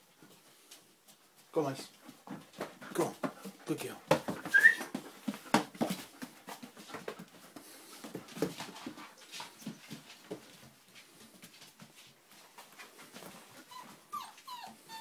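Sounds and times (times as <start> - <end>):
puppies whimpering: 13.6 - 15.0.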